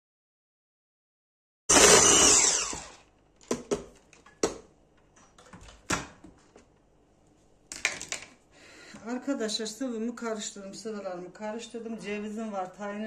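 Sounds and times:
stick blender running: 1.7 - 3.1
plastic clicks and knocks: 3.4 - 6.7, 7.7 - 8.4.

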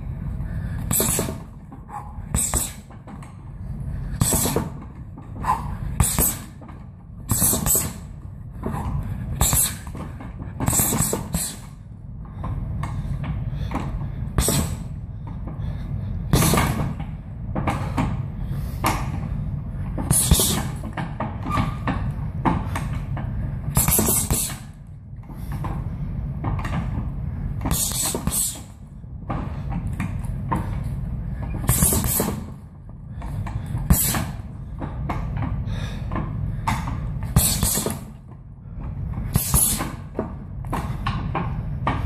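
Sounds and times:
punches thudding into heavy bag: 23.8 - 24.6.

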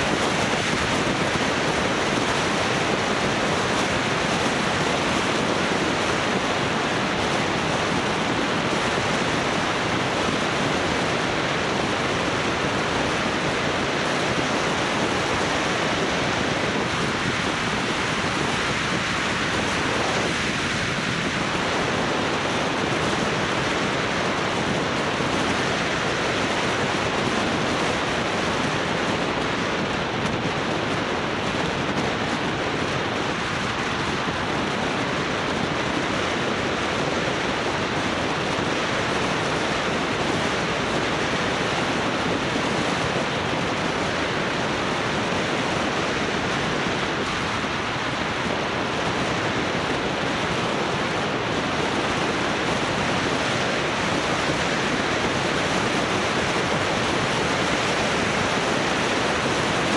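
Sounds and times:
steady rushing noise: 0.0 - 59.9.

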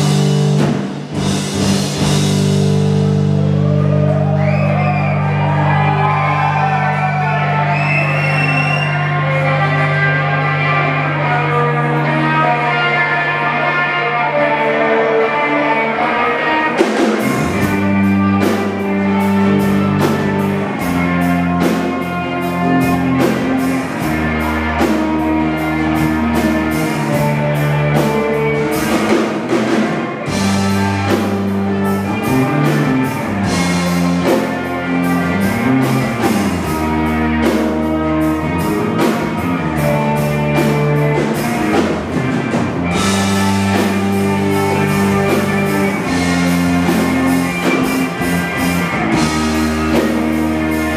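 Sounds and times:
drum and cymbal hits: 0.0 - 3.8
electric guitar: 0.0 - 50.9
low bass notes: 0.0 - 50.9.

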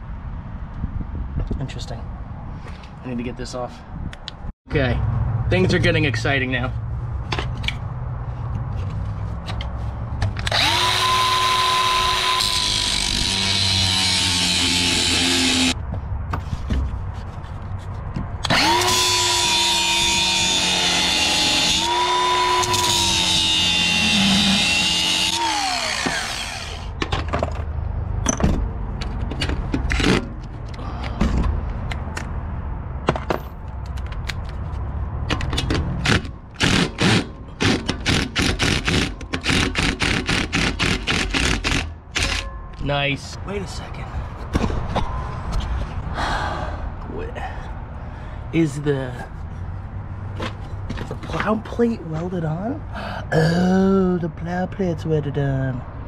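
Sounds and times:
angle grinder cutting metal rod: 10.4 - 15.8, 18.4 - 26.9.

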